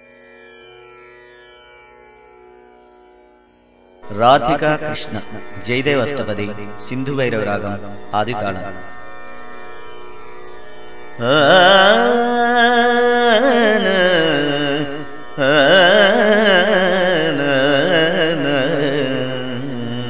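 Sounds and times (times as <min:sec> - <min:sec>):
man singing wordless phrases: 0:04.0 - 0:08.8, 0:11.2 - 0:20.0.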